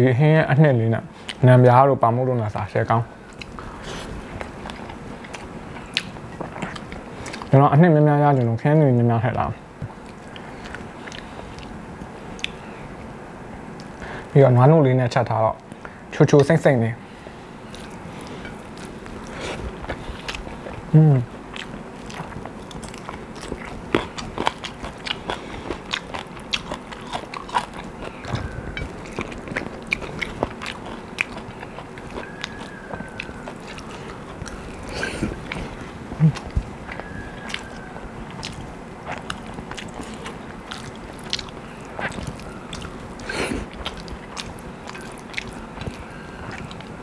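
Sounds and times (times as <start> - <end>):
person chewing: 3.2 - 7.5, 9.9 - 12.7, 17.5 - 47.0.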